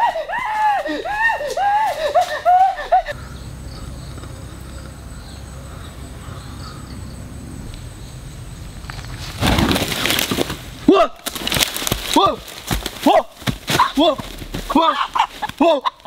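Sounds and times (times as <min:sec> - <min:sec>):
pitched vocal cries: 0:00.0 - 0:03.2
faint insect chirping: 0:02.8 - 0:09.5
steady low rumble: 0:03.1 - 0:09.3.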